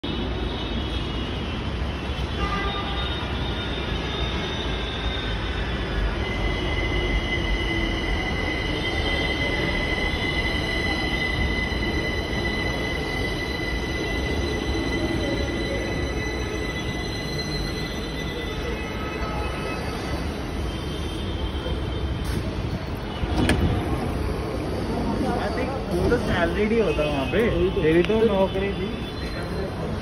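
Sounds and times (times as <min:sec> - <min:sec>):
train pulling into platform: 0:00.0 - 0:30.0
high-pitched steady whine: 0:01.6 - 0:22.0.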